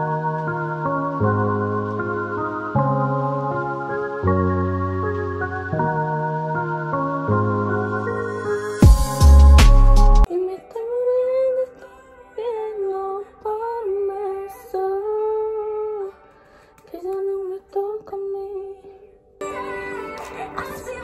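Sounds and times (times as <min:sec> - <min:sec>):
wordless humming melody: 0:00.0 - 0:10.3.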